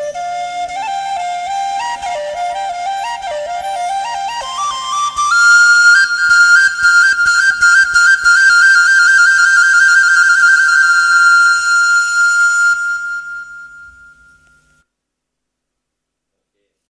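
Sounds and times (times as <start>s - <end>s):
flute trilling and holding note: 0.0s - 14.8s.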